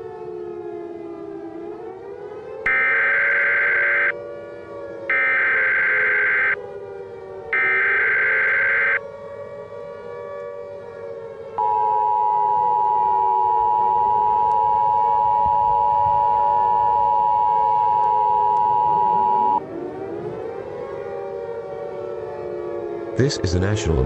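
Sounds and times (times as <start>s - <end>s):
civil defense siren wailing: 0.0s - 23.7s
second siren winding up: 2.4s - 4.2s, 5.0s - 6.6s, 7.5s - 9.0s, 11.5s - 19.6s.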